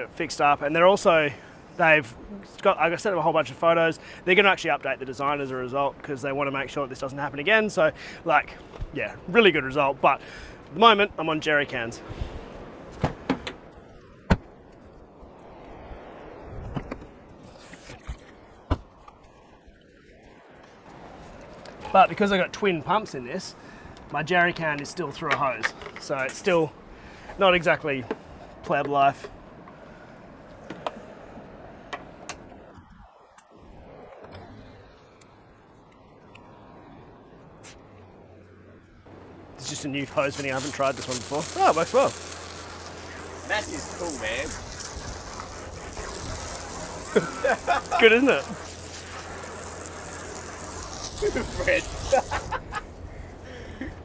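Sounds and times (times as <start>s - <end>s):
steady background hiss: 0.0s - 54.0s.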